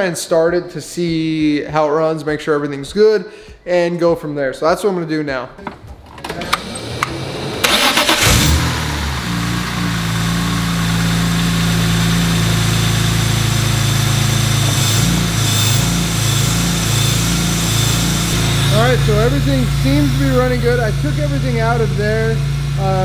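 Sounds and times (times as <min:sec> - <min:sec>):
starter motor cranking: 0:06.2 - 0:09.1
car engine idling: 0:06.4 - 0:23.0.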